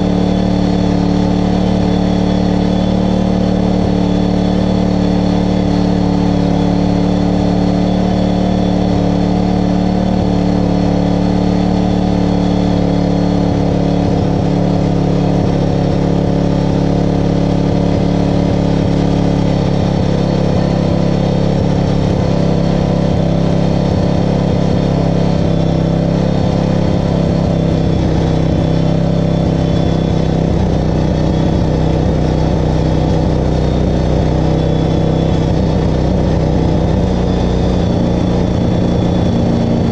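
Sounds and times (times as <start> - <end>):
lawn mower engine droning: 0.0 - 39.9.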